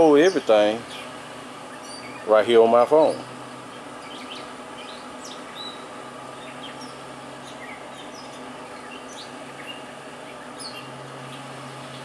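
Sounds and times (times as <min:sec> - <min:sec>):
birds chirping: 0:00.0 - 0:12.0
steady low hum: 0:00.0 - 0:12.0.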